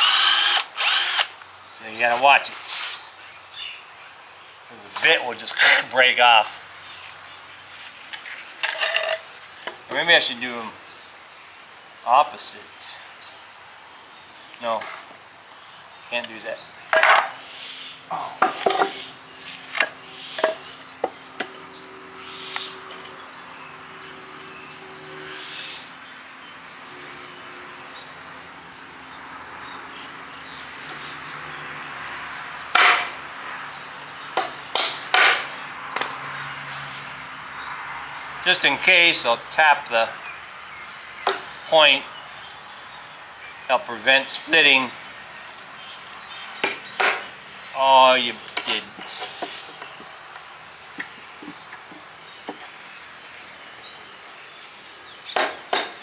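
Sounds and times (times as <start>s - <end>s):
power drill boring into wood: 0.0s - 1.3s.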